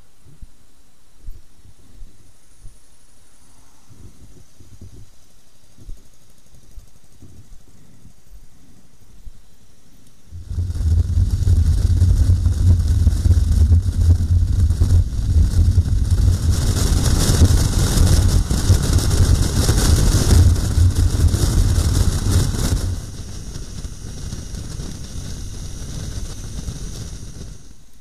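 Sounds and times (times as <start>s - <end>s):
wind buffeting microphone: 3.8s - 9.3s, 10.2s - 27.8s
motorcycle engine rumble: 10.2s - 28.0s.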